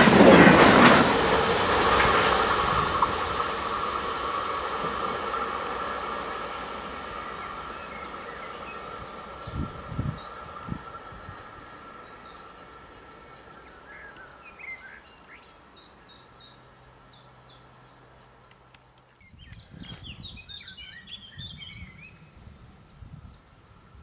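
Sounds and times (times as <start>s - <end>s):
low gusty rumbling: 0.0s - 13.8s, 19.2s - 24.0s
small birds chirping and singing: 4.6s - 22.3s.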